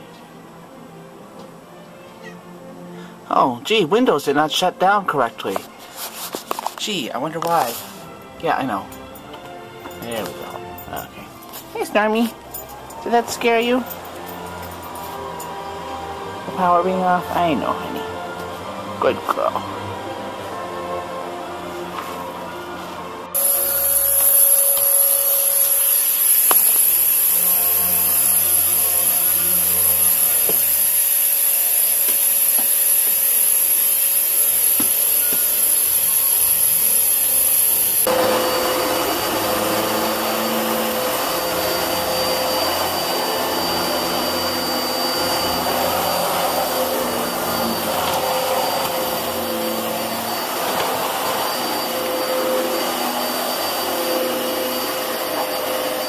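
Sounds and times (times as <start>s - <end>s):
vacuum cleaner whining: 23.4s - 56.0s.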